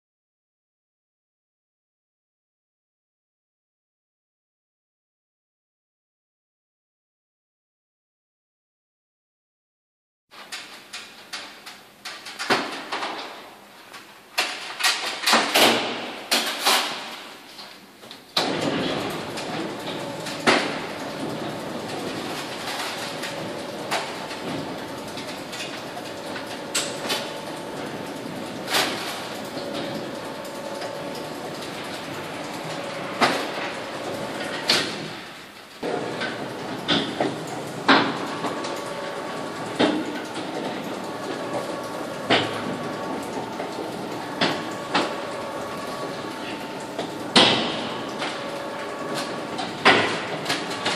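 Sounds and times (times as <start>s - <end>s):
storage carousel chain hum: 18.3s - 50.9s
machine clunks: 18.4s - 50.9s.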